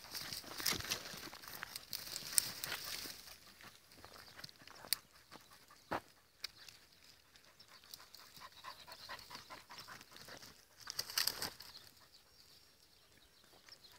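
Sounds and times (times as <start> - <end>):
brush rustling: 0.0 - 5.3, 10.0 - 11.9
twigs crackling: 0.0 - 5.4, 10.0 - 12.0
footsteps crunching through scrub: 0.0 - 6.9.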